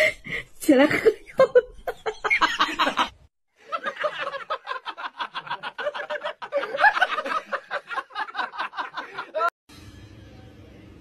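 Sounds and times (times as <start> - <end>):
person laughing: 5.2 - 9.5.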